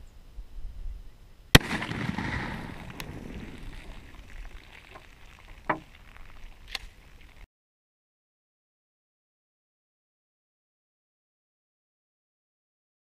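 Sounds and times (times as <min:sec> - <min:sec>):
shotgun shot with echo: 0:01.6 - 0:03.3
faint pop: 0:01.6 - 0:06.9.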